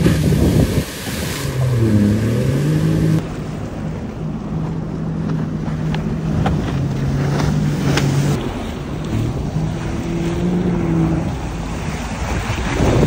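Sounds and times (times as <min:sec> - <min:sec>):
water spray rushing: 0:00.0 - 0:03.3
watercraft engine running: 0:00.0 - 0:13.0.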